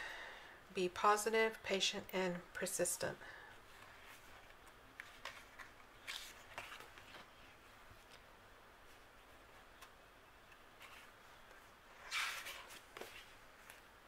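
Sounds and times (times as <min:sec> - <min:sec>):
sticker book pages turning: 0:03.8 - 0:08.2.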